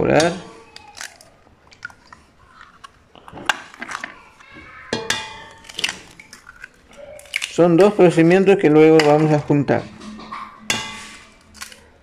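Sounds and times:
eggs tapping on metal bowl: 0:07.4 - 0:11.2.

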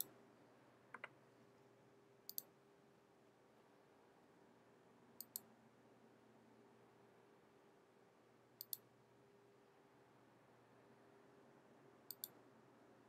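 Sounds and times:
faint room hum: 0:00.0 - 0:13.0
computer mouse and keyboard clicks: 0:00.9 - 0:01.2, 0:12.1 - 0:12.4.

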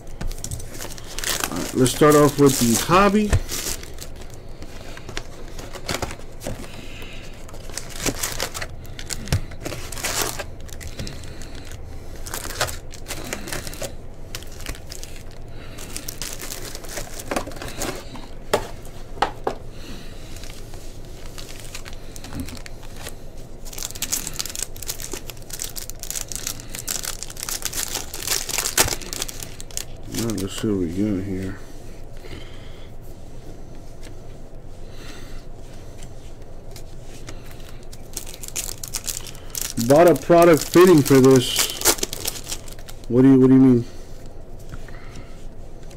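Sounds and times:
plastic wrappers crinkling and tearing: 0:00.0 - 0:18.3, 0:20.2 - 0:31.0, 0:36.6 - 0:43.6.

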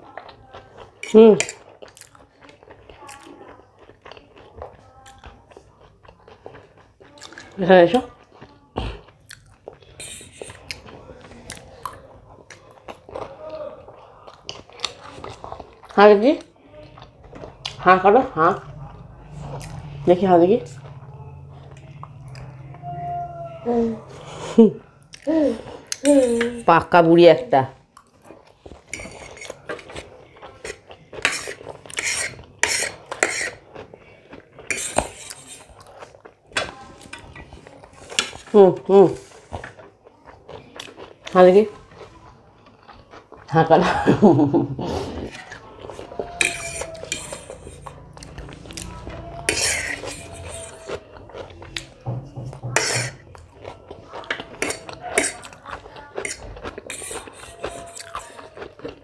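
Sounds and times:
chewing: 0:00.0 - 0:23.1, 0:27.8 - 0:59.0
cutlery scraping a plate: 0:10.0 - 0:10.6, 0:28.8 - 0:33.6, 0:34.6 - 0:35.8, 0:36.6 - 0:38.6, 0:45.1 - 0:51.0, 0:52.1 - 0:53.4, 0:54.2 - 0:55.6, 0:56.2 - 0:58.5
cutlery clinking on plate: 0:46.4 - 0:47.9, 0:49.5 - 0:50.8, 0:52.1 - 0:53.2, 0:54.3 - 0:55.5.

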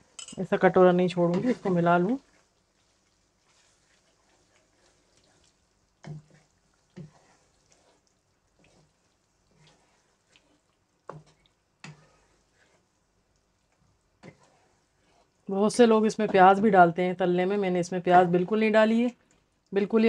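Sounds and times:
spatula scraping frying pan: 0:01.1 - 0:13.1, 0:14.0 - 0:15.4.

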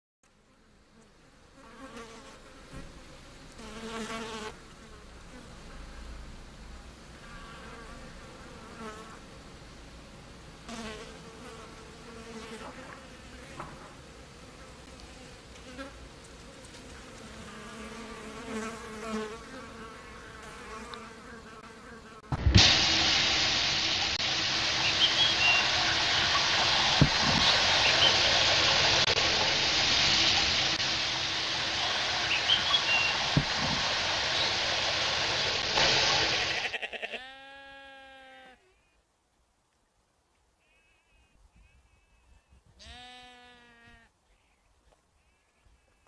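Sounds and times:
flying insects buzzing: 0:01.1 - 0:06.0, 0:10.7 - 0:37.0.

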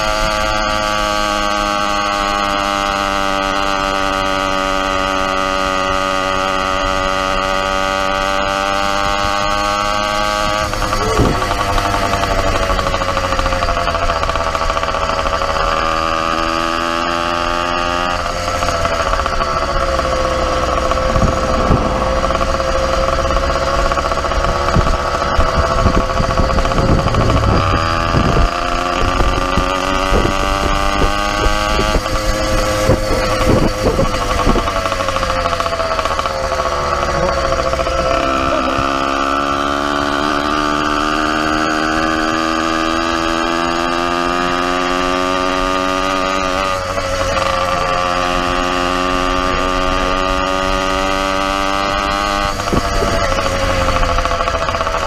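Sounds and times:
two-stroke engine buzzing: 0:00.0 - 0:55.0
wind on microphone: 0:10.3 - 0:13.0, 0:19.9 - 0:23.6, 0:24.2 - 0:35.6, 0:48.6 - 0:54.8.

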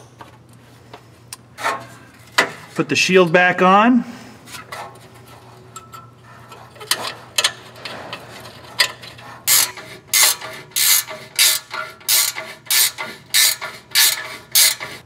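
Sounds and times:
ratchet wrench clicking: 0:09.5 - 0:15.0.

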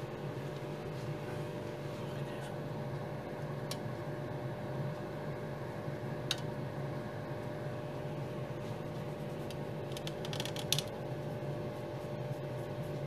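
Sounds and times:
fan humming: 0:00.0 - 0:13.0
applicator ticks and scratches: 0:09.4 - 0:11.0.

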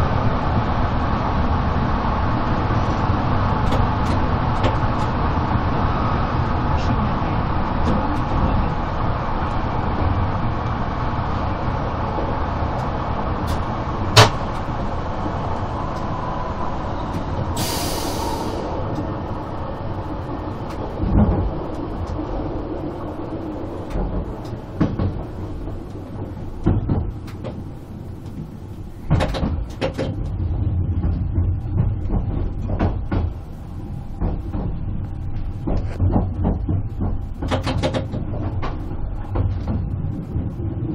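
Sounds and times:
train wheels rumbling on rail: 0:00.0 - 0:40.9
short hiss: 0:17.6 - 0:18.6.

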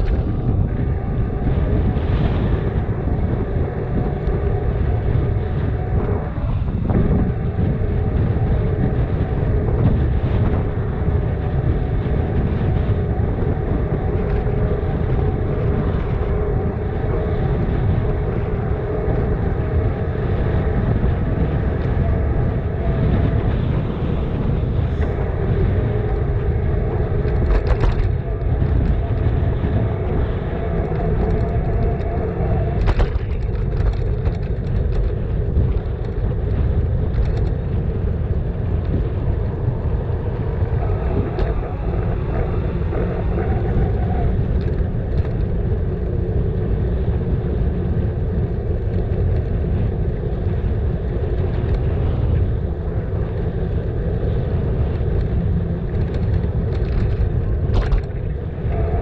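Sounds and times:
wind and bicycle road rumble: 0:00.0 - 0:59.0
brief clicks and rattles: 0:27.3 - 0:28.2.

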